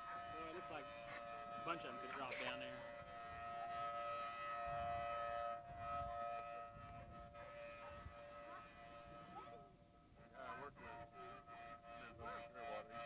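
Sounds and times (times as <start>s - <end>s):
warning siren steady tone: 0.0s - 13.0s
wind rumble on microphone: 4.5s - 11.0s.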